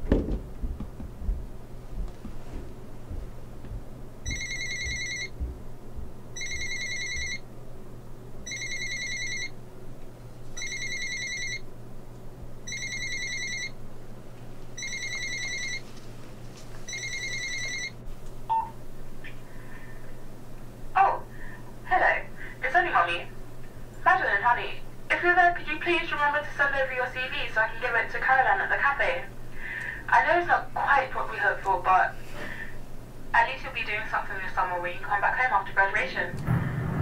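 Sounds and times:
steady low hum: 0.0 - 37.0
electronic telephone ringing: 4.2 - 5.3, 6.4 - 7.4, 8.4 - 9.5, 10.6 - 11.6, 12.7 - 13.8, 14.8 - 15.8, 16.9 - 18.7.

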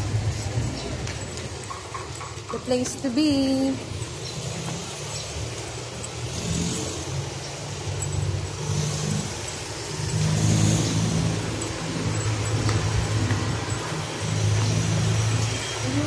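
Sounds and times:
motorcycle engines humming: 0.0 - 16.0.

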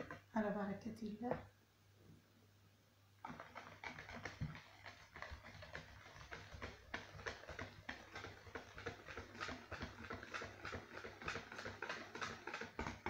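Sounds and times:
whisk clicking against plastic bowl: 0.0 - 0.5, 3.2 - 13.0.

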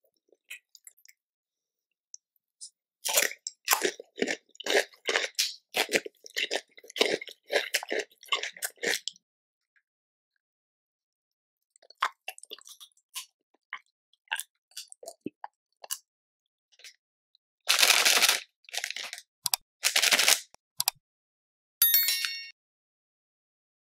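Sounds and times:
plastic wrapper crinkling: 17.7 - 20.5.

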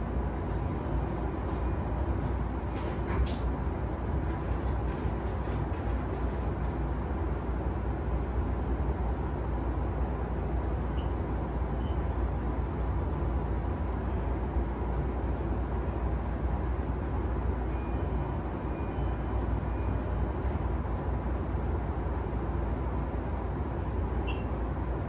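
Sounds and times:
small brief squeak: 24.2 - 24.6.

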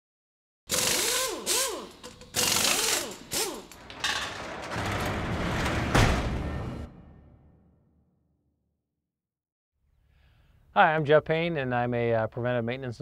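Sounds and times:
mechanical clanking and whirring: 0.7 - 7.0.

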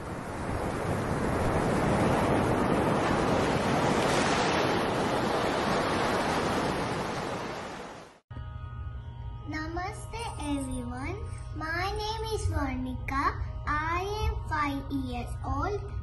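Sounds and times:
ocean surf washing onto beach: 0.0 - 8.2.

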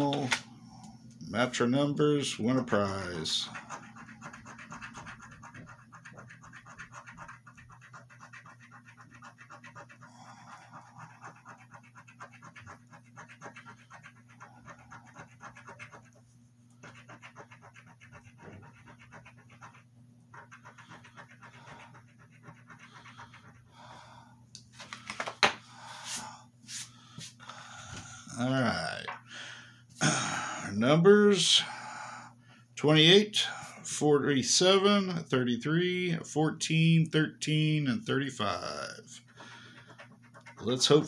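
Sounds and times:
coin scraping scratch card: 2.7 - 16.2, 16.8 - 23.6, 38.4 - 41.0.

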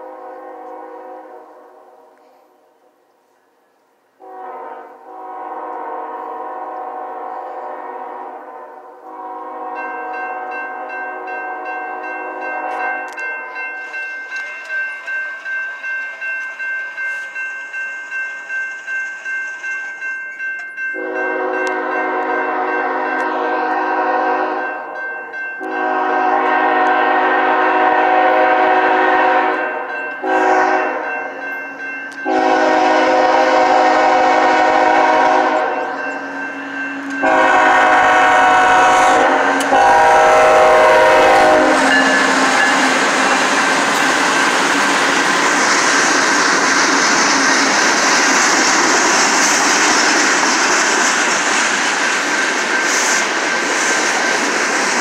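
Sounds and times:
locomotive horn blasts: 0.0 - 2.2, 4.2 - 13.2, 21.0 - 24.8, 25.6 - 31.2, 32.2 - 44.1
crossing warning bell ringing: 9.2 - 46.6, 51.2 - 53.7.

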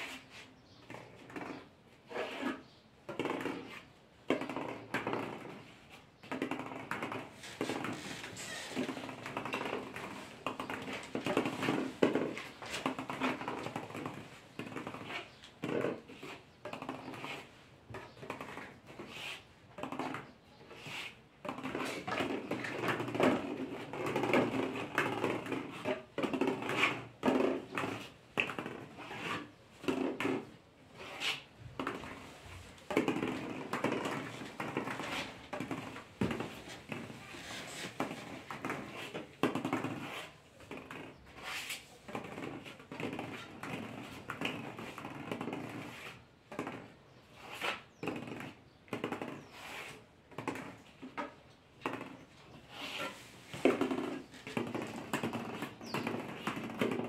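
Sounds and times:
small balls bouncing and clattering: 31.7 - 41.2.

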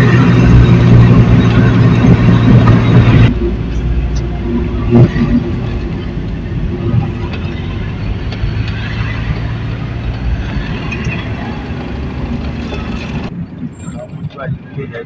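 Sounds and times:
bus engine hum: 0.0 - 15.0
road noise rushing: 0.0 - 15.0.

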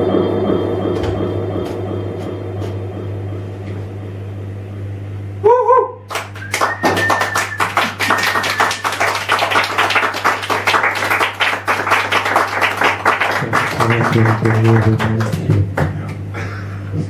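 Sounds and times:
wavering electronic tone: 0.0 - 5.8
low electrical hum: 0.0 - 17.0.

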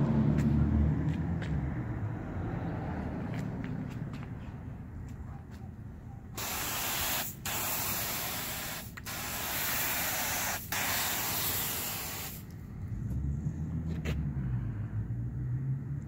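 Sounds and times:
hissing spray on wall: 6.4 - 12.5.

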